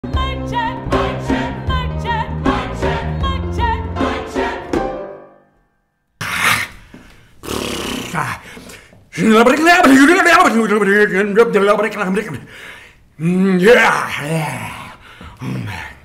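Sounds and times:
choir singing with vibrato: 0.1s - 5.3s.

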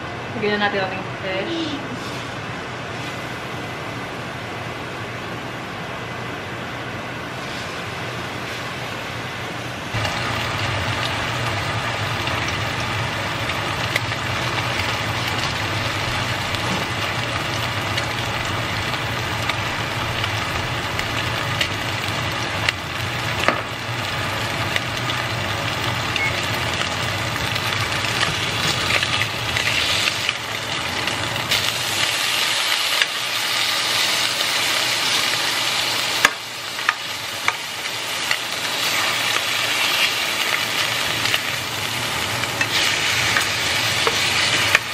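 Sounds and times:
fish frying in oil: 9.9s - 44.9s.

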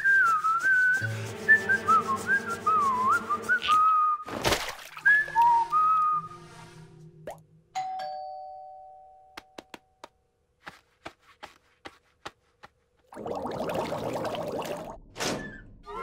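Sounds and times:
whistled tune: 0.0s - 4.3s, 4.9s - 6.8s
ding-dong doorbell chime: 7.8s - 9.4s.

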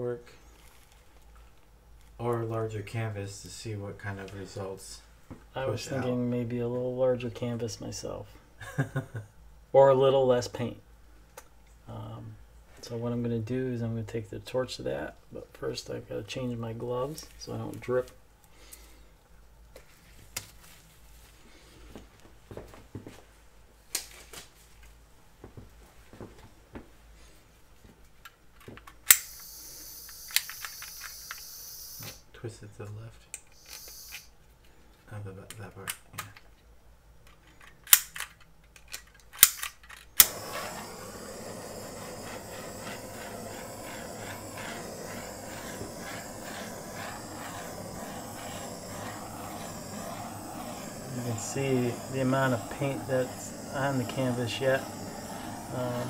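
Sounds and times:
gas torch igniter clicks: 29.1s - 32.2s, 39.4s - 56.0s
torch flame hissing: 40.2s - 56.0s.

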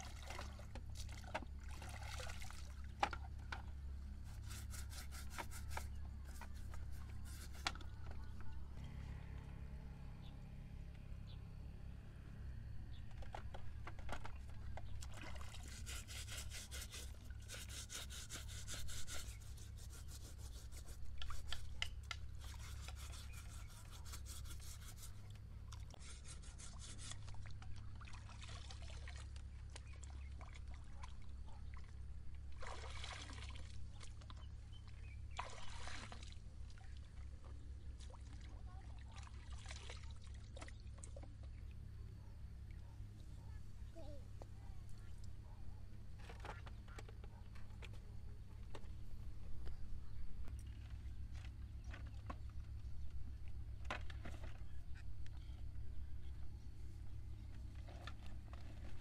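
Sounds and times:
low steady rumble: 0.0s - 59.0s
brush scrubbing shoe: 4.2s - 7.7s, 15.6s - 21.7s, 22.4s - 25.2s, 26.0s - 27.2s.

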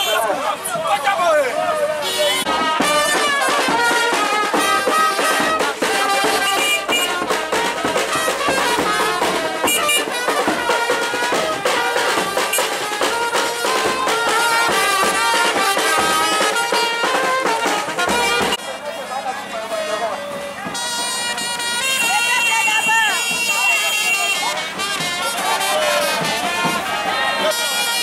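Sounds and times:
marching band playing: 0.0s - 28.0s
big drum beating: 2.4s - 18.6s, 24.5s - 27.3s.

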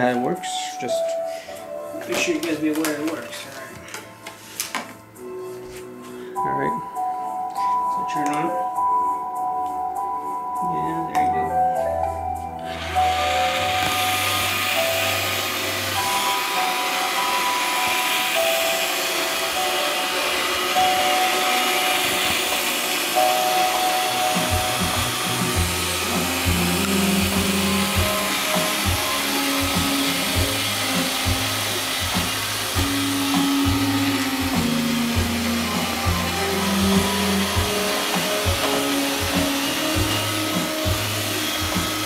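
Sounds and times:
music with stepping notes: 0.0s - 42.0s
robot vacuum whirring: 12.6s - 42.0s.

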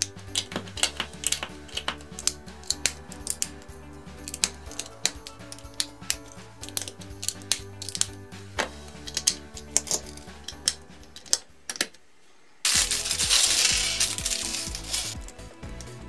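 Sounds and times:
background music: 0.0s - 12.0s, 12.6s - 16.0s
plastic bag rustling: 12.6s - 15.4s.

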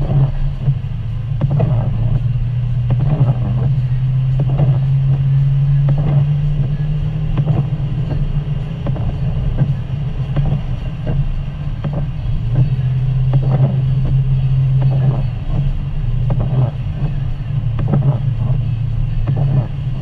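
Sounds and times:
engine and tyre drone: 0.0s - 20.0s
sleet ticking on windshield: 0.0s - 20.0s.

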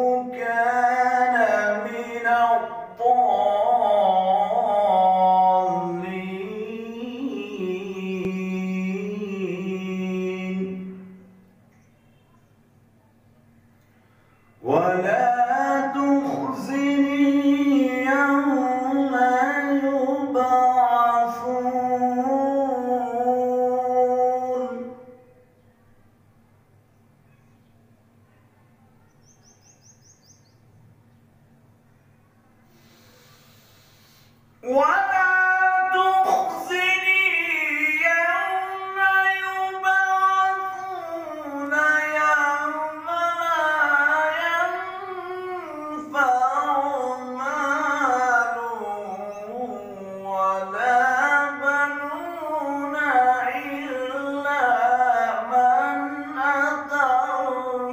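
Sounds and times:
man chanting melodically: 0.0s - 11.4s, 14.4s - 25.4s, 34.6s - 57.9s.

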